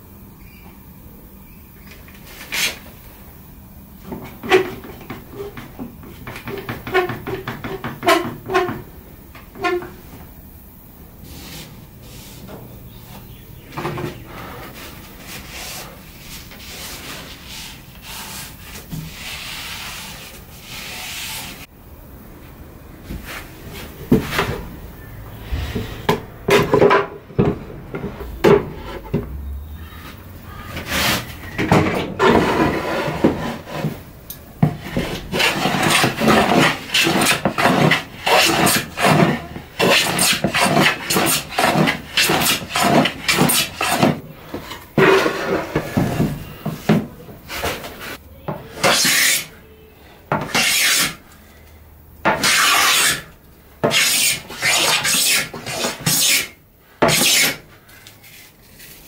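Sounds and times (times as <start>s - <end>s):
hand rubbing wooden tabletop: 25.3s - 31.3s.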